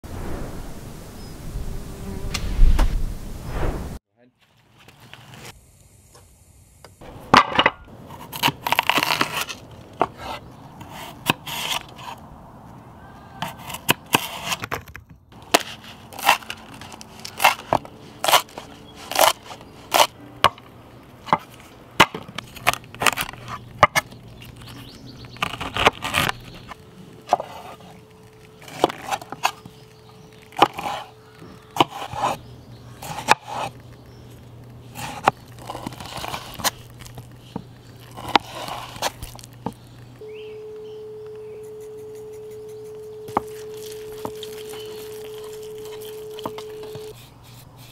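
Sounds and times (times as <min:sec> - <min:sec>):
knife chopping on cutting board: 0:31.8 - 0:32.4.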